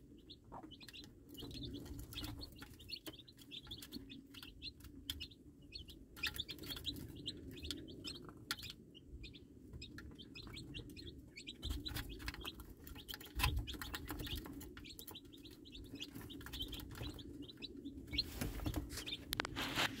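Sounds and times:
baby chicks peeping: 0.0s - 20.0s
beaks pecking plastic feeder: 0.3s - 19.6s
scratching in wood shavings: 18.2s - 20.0s.

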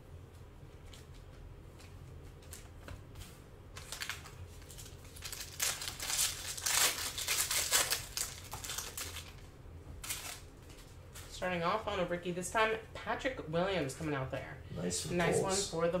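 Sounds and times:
card pack crinkling and tearing: 3.8s - 11.0s.

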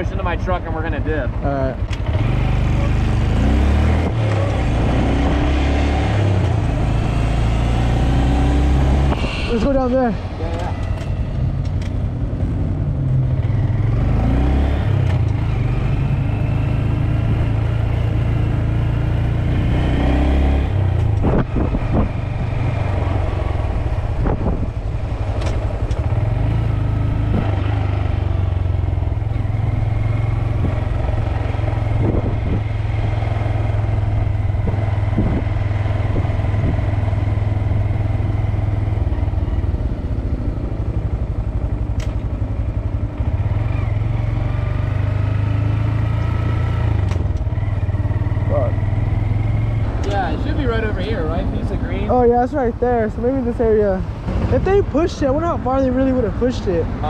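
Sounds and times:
small motorcycle engine: 13.2s - 57.0s.

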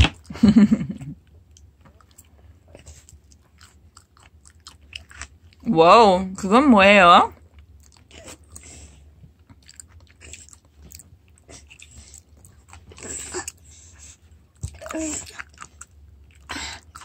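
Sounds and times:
toddler chewing: 1.5s - 5.6s, 7.6s - 17.0s.

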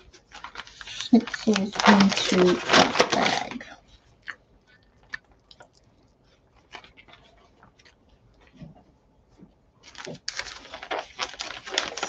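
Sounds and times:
plastic bags rustling: 0.0s - 3.8s, 9.8s - 12.0s.

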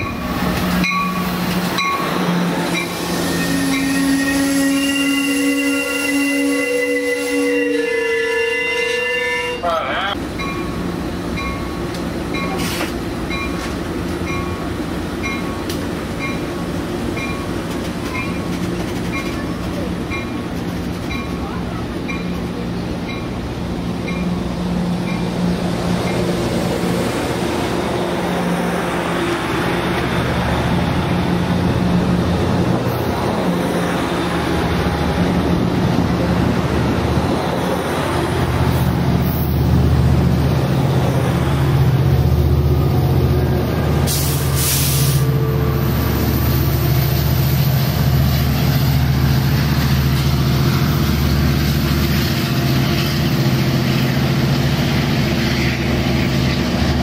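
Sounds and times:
diesel locomotive hum: 0.0s - 57.0s
passenger train rolling by: 0.0s - 57.0s
air hiss: 44.0s - 45.3s.

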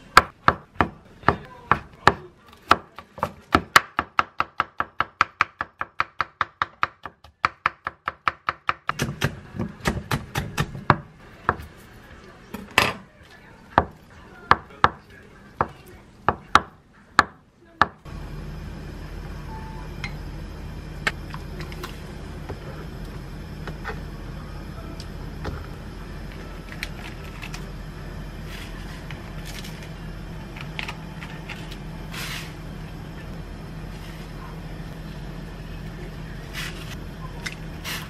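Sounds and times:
steady low hum: 8.9s - 38.0s.

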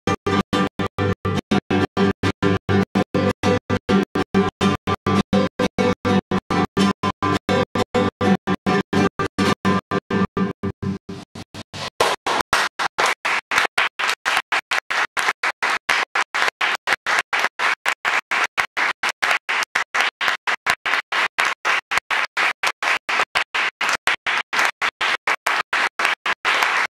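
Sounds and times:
audience applauding: 11.8s - 26.9s.

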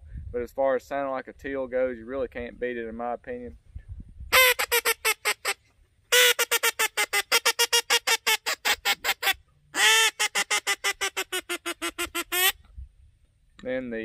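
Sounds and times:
duck call quacking: 4.3s - 12.6s.

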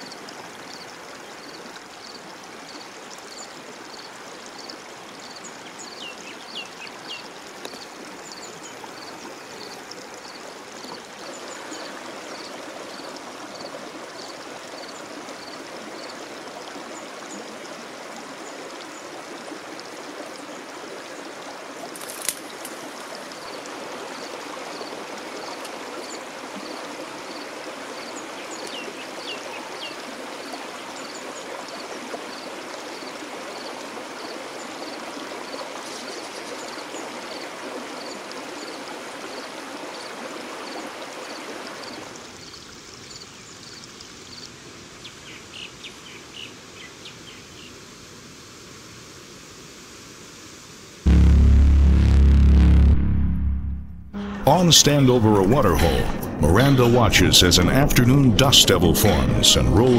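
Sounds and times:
running water: 0.0s - 44.4s.

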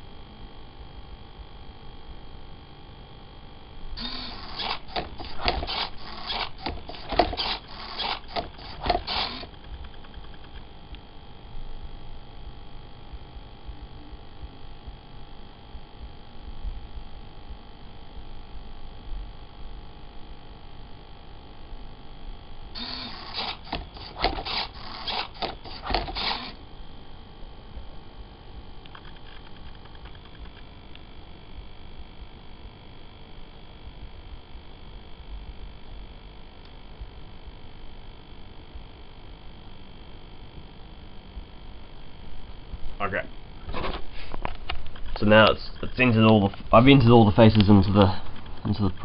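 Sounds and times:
servos whirring: 4.0s - 10.3s, 22.8s - 26.6s.

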